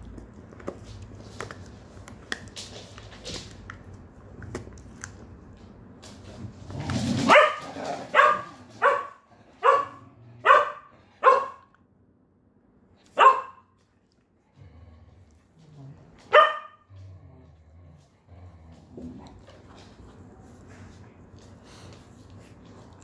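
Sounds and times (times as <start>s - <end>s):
dog barking: 7.3s - 11.7s, 13.1s - 13.7s, 16.3s - 16.9s.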